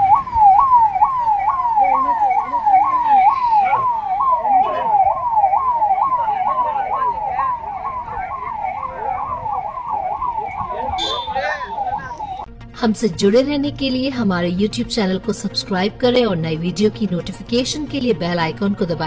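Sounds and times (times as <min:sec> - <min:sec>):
emergency siren wailing: 0:00.0 - 0:12.5.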